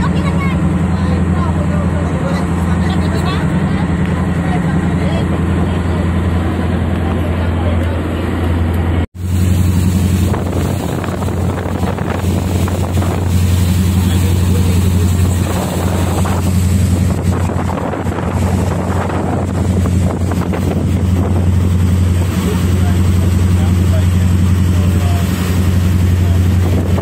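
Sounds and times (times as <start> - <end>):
boat diesel engine humming: 0.0 - 27.0
boat wake rushing: 0.0 - 27.0
wind on microphone: 9.2 - 23.6, 25.5 - 27.0.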